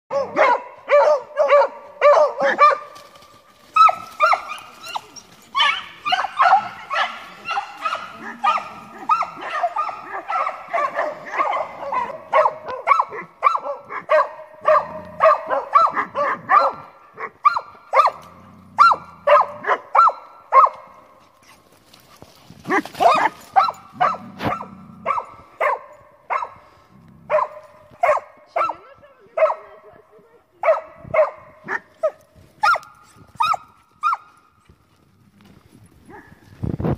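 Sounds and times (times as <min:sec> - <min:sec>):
dog barking: 0:00.1 - 0:02.9, 0:05.6 - 0:18.2, 0:18.8 - 0:20.9, 0:22.7 - 0:26.6, 0:27.3 - 0:29.8, 0:30.6 - 0:32.8, 0:33.4 - 0:34.3.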